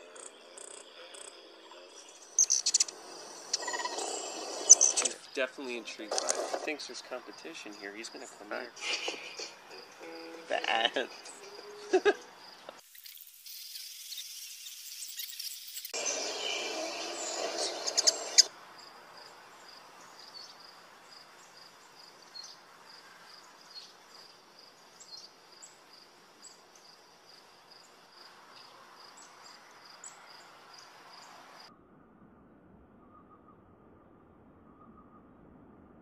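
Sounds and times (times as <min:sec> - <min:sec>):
insects chirping: 0:00.0 - 0:31.7.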